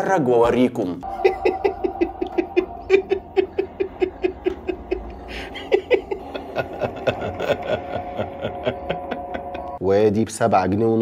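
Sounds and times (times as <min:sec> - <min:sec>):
held synth tone: 0:01.0 - 0:09.8.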